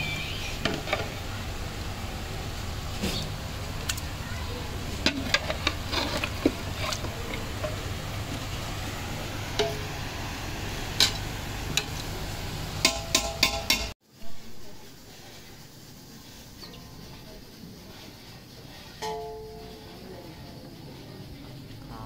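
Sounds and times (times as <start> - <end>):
metal skimmer scraping pot: 0.0 - 1.2, 4.6 - 8.7
steady hiss: 0.0 - 22.0.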